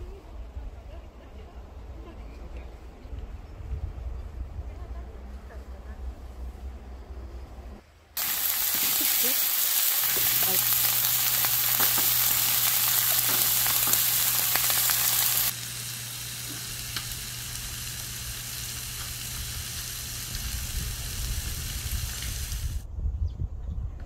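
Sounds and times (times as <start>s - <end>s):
crackling hiss with ticks: 8.2s - 22.8s.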